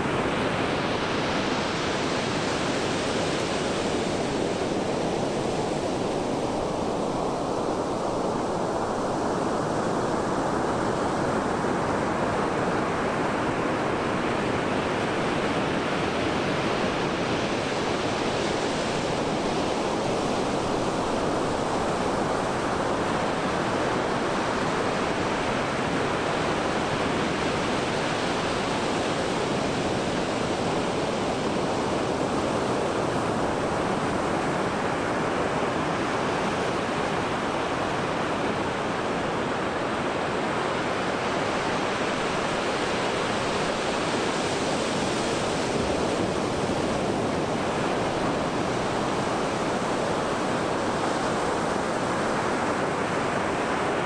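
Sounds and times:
surf waves breaking on beach: 0:00.0 - 0:54.0.

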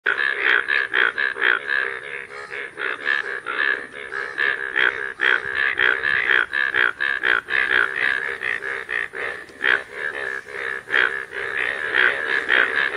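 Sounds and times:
frogs croaking: 0:00.0 - 0:12.9.

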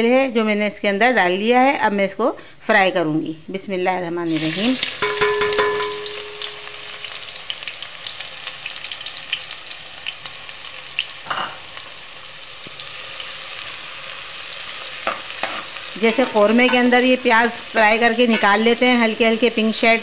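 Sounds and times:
onions sizzling in oil: 0:04.2 - 0:20.0.

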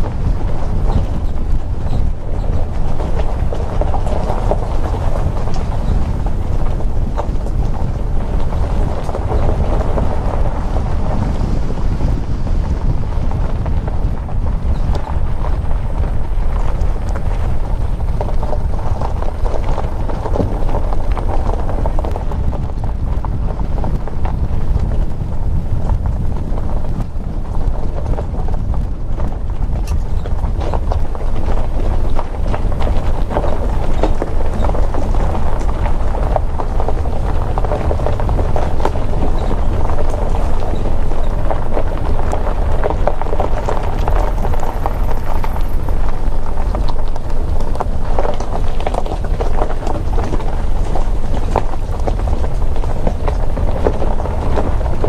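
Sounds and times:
tyres rumbling over gravel: 0:00.0 - 0:55.0
wind rumble on microphone: 0:00.0 - 0:55.0
small stones clicking and crunching: 0:13.4 - 0:55.0.

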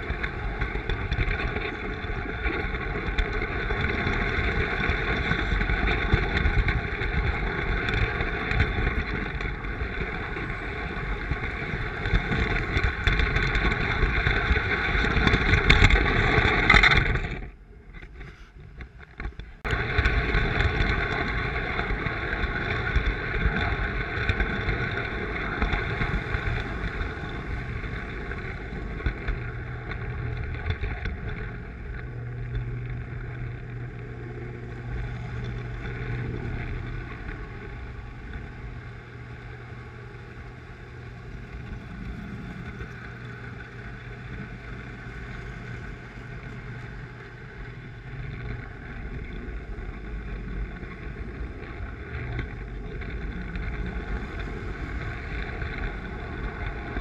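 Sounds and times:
low hum: 0:00.0 - 0:57.0
toy train rolling on track: 0:19.7 - 0:57.0.

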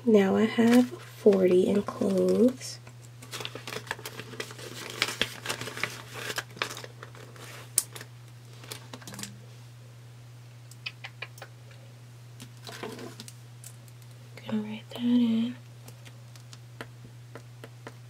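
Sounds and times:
banknotes and plastic pouch rustling: 0:00.6 - 0:09.2.

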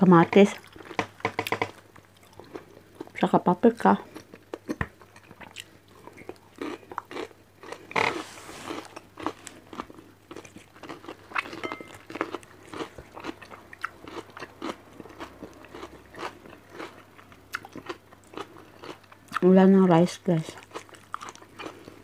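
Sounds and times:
crunching raw vegetables: 0:04.1 - 0:19.4, 0:20.6 - 0:22.0.

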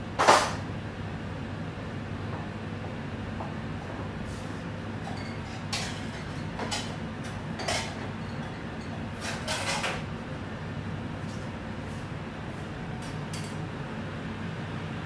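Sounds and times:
low machine hum: 0:00.0 - 0:15.0
metal pots and utensils clattering: 0:05.0 - 0:10.0.

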